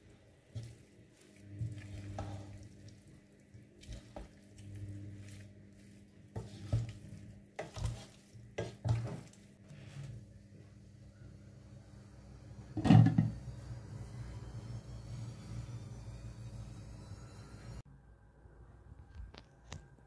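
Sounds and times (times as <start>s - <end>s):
spoon stirring thick food: 0.0s - 10.2s.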